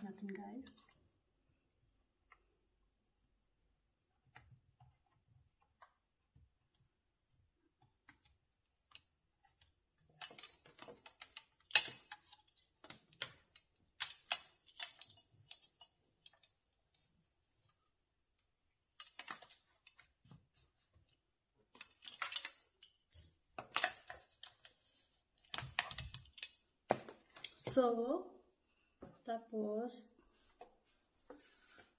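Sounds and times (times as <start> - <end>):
plastic and metal parts clicking: 8.9 - 17.8, 21.6 - 24.8, 25.4 - 27.6.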